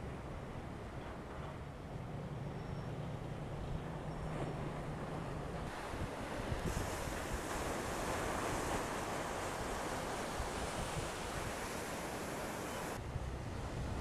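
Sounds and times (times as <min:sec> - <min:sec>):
waves breaking: 0:03.1 - 0:14.0
wind buffeting microphone: 0:03.7 - 0:14.0.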